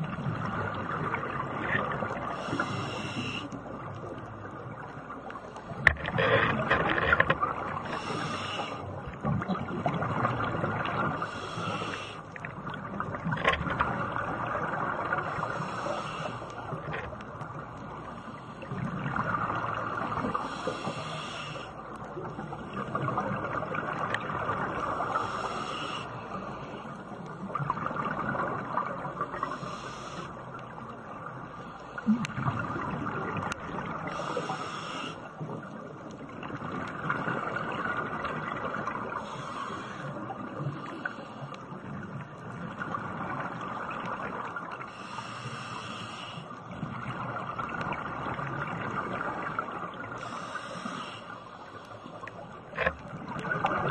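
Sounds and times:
regulator inhale hiss: 0:02.2 - 0:03.6, 0:07.8 - 0:08.9, 0:11.1 - 0:12.4, 0:15.2 - 0:16.8, 0:18.0 - 0:18.8, 0:20.3 - 0:21.8, 0:25.0 - 0:27.0, 0:29.4 - 0:30.6, 0:34.0 - 0:35.3, 0:39.2 - 0:41.7, 0:44.8 - 0:46.7, 0:50.1 - 0:52.3
exhaled bubbles rushing: 0:52.8 - 0:53.9.

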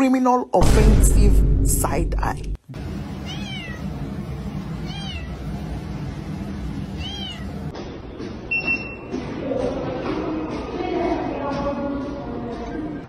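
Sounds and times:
steady low hum: 0:00.8 - 0:08.5
cat meowing: 0:03.2 - 0:03.9, 0:04.8 - 0:05.4, 0:07.0 - 0:07.6
short beep: 0:08.5 - 0:09.1.

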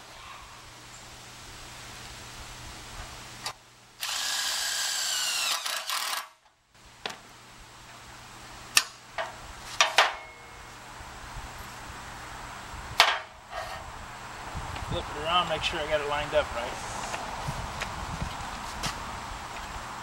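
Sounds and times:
power drill driving a fastener: 0:04.0 - 0:06.4.

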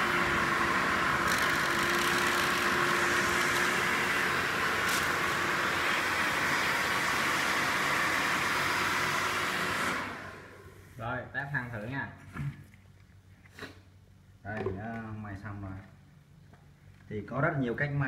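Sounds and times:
hot-air gun blowing: 0:00.0 - 0:10.8.

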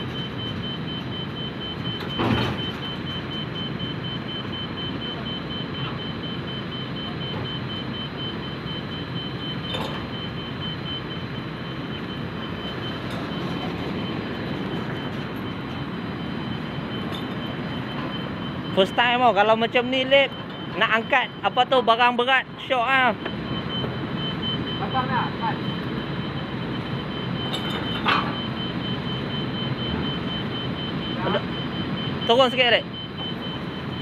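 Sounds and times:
forklift running noise: 0:00.0 - 0:34.0
high warning beep: 0:00.0 - 0:34.0.

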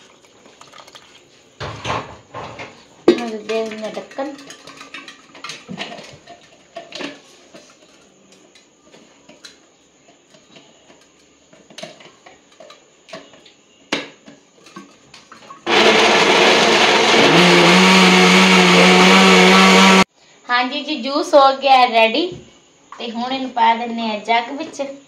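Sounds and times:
electric blender running: 0:15.6 - 0:20.1.

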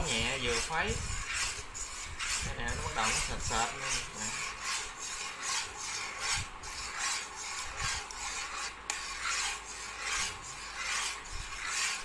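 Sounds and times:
utensil scraping bottom of pot: 0:00.0 - 0:12.0.

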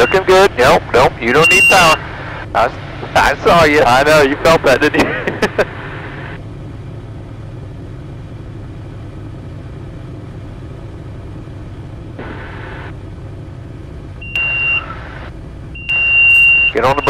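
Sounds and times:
thin high beep: 0:00.0 - 0:00.3, 0:01.3 - 0:02.0, 0:15.8 - 0:17.0
aircraft engine idling: 0:00.0 - 0:17.0.

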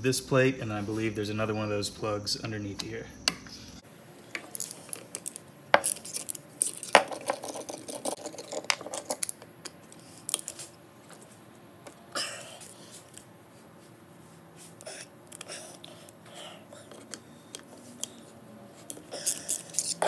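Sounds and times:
screwdriver clicking and scraping metal: 0:18.9 - 0:20.0.

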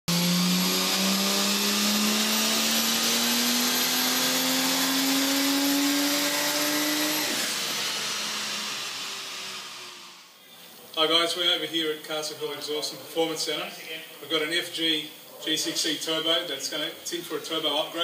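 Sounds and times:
car engine revving under load: 0:00.1 - 0:10.3.

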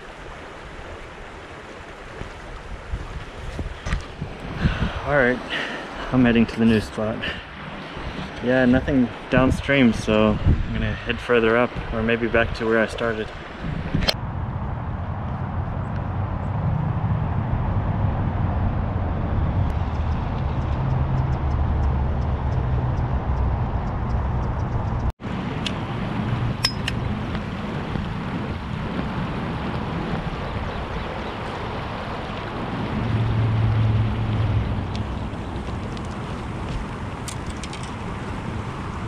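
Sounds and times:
river water flowing: 0:00.0 - 0:14.1, 0:25.2 - 0:39.0
wind on microphone: 0:00.0 - 0:39.0.

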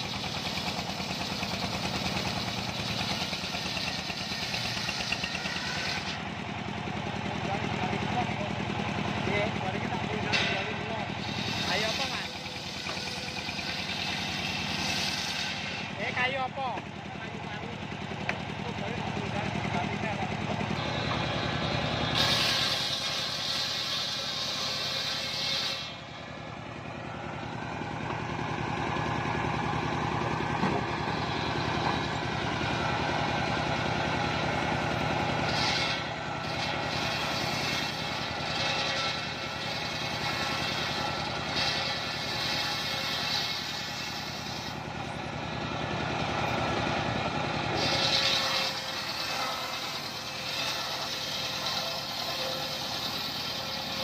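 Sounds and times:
saw blade cutting hiss: 0:00.0 - 0:06.3, 0:10.3 - 0:16.2, 0:22.0 - 0:26.0, 0:35.4 - 0:44.8, 0:47.8 - 0:54.0
engine running: 0:00.0 - 0:54.0.

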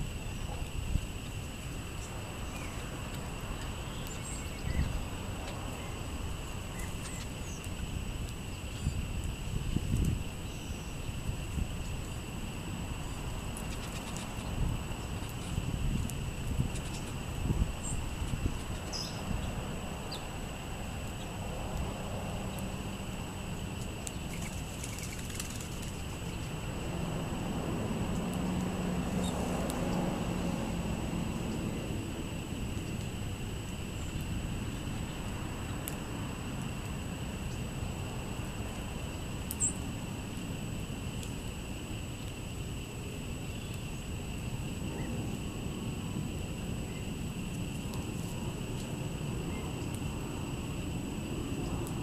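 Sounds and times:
high background hum: 0:00.0 - 0:52.0
songbirds chirping: 0:00.1 - 0:26.8, 0:28.0 - 0:37.8, 0:41.2 - 0:45.4, 0:48.6 - 0:50.6
faint small ticks: 0:09.2 - 0:10.2, 0:13.5 - 0:17.2, 0:23.8 - 0:26.5, 0:41.2 - 0:41.4, 0:51.6 - 0:52.0.

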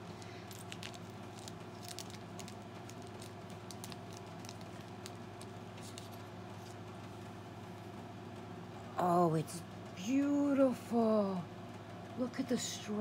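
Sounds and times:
package clicks and crinkles: 0:00.0 - 0:06.8
steady low hum: 0:00.0 - 0:13.0.

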